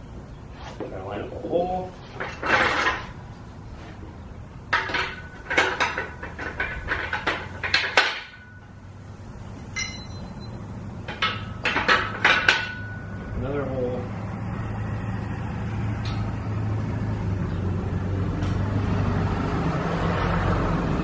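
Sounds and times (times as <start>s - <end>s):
metal parts and bolts clanking: 2.0s - 3.2s, 4.7s - 8.8s, 9.7s - 13.2s.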